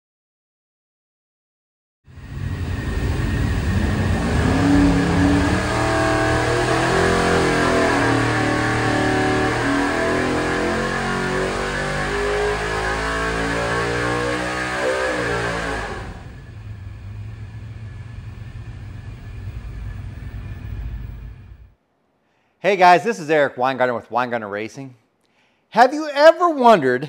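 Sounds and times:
engine revving at full throttle: 2.2s - 21.7s.

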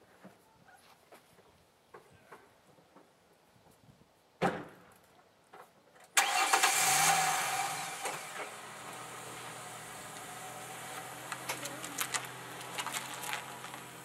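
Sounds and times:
car engine starting and idling: 6.2s - 14.0s.

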